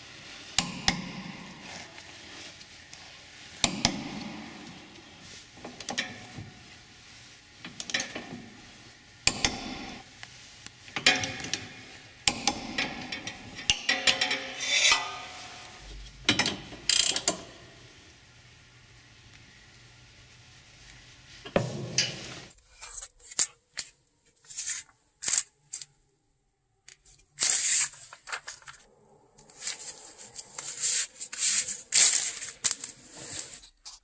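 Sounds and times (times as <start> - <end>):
ratchet clicking: 16.9 - 17.4.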